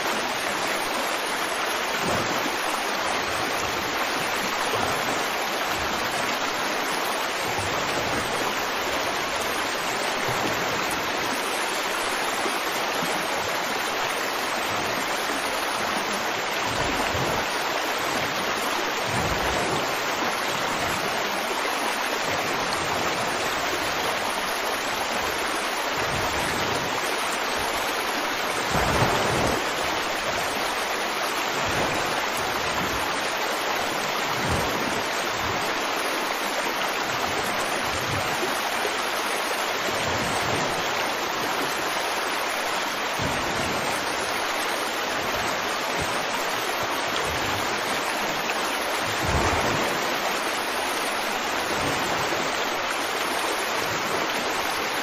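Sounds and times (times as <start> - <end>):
steady rushing noise: 25.6 - 33.3.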